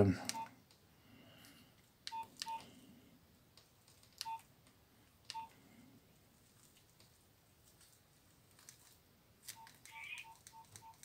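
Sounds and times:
mobile phone keypad beeps: 0.3 - 0.6, 2.1 - 2.7, 4.2 - 4.5, 5.3 - 5.6, 9.5 - 11.0.

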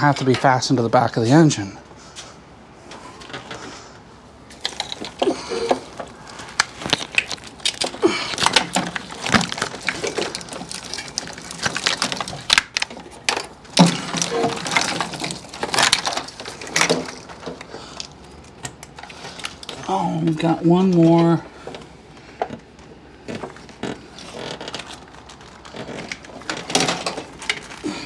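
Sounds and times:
wiring and connectors rattling: 4.4 - 28.0.

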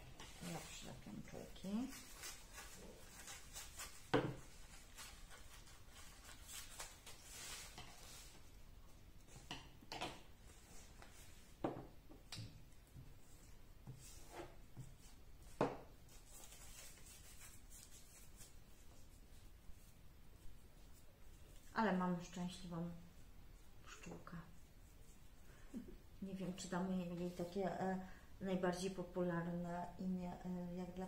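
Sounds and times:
paper rustling: 0.4 - 8.5, 16.1 - 19.2.

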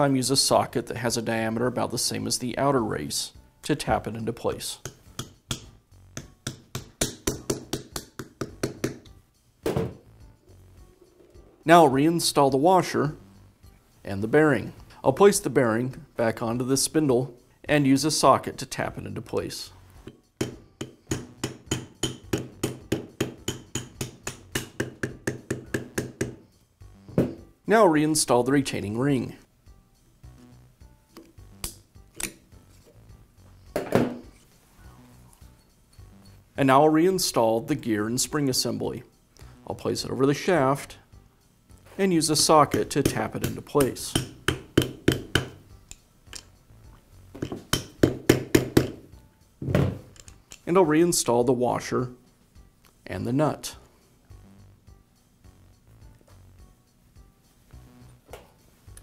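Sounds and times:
hammer tapping on metal socket: 42.7 - 46.5.

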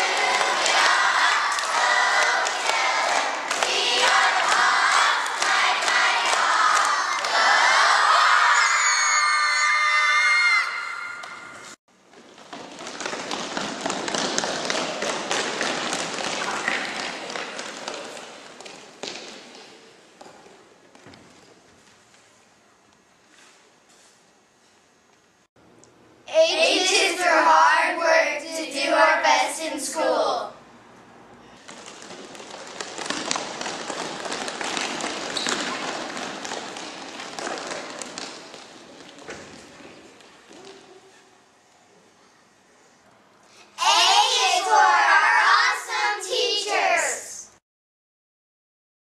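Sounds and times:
voices: 26.3 - 30.6, 43.8 - 47.5
quick claps and taps: 31.6 - 39.2.

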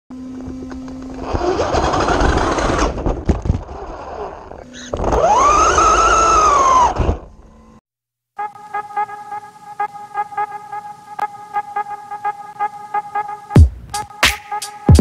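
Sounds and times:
motor whine: 0.1 - 7.8
buggy rolling and rattling: 0.3 - 7.3.

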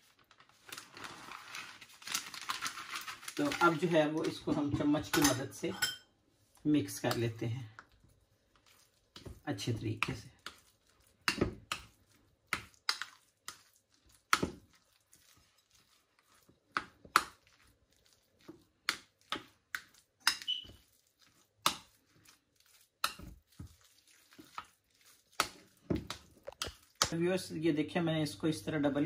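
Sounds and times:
metal spoon clinking glass bowl: 5.0 - 6.1.

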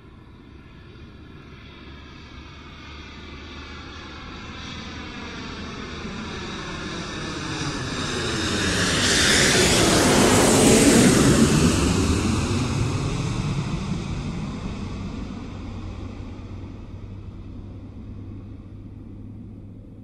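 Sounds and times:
jet airliner flying overhead: 0.0 - 20.0.

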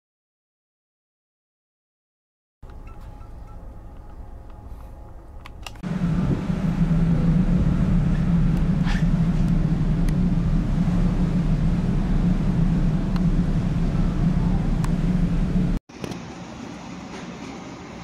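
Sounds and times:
low steady hum: 2.6 - 15.8
ship engine rumble: 2.6 - 18.0
wind: 2.6 - 18.0.

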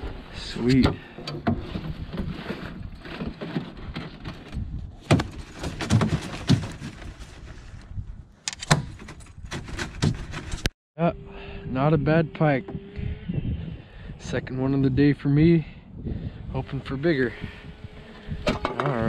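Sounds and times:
gear thudding against a canoe: 0.0 - 7.8, 8.7 - 10.7.

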